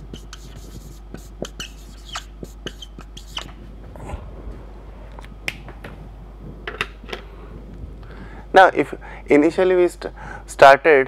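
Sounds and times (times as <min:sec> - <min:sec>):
marker writing on whiteboard: 0:00.0 - 0:03.6.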